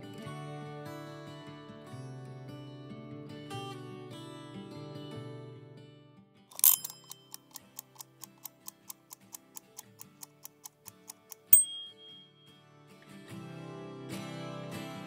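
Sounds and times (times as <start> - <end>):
timer rasping when set: 6.5 - 12.2
kitchen timer ticking: 6.5 - 12.3
timer ding: 6.6 - 12.6.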